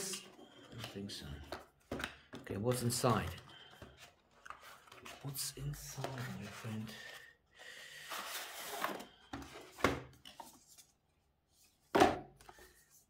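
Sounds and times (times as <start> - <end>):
box rustling as it is opened: 2.6 - 7.1, 8.1 - 10.9.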